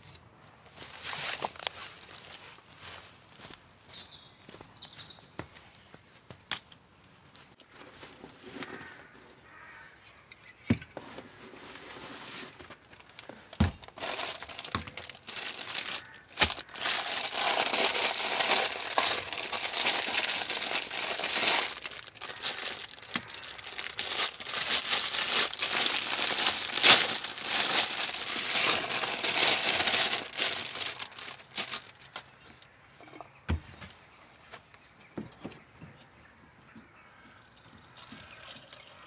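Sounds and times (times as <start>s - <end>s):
plastic bag crinkling: 0.8s - 2.8s, 12.7s - 32.2s.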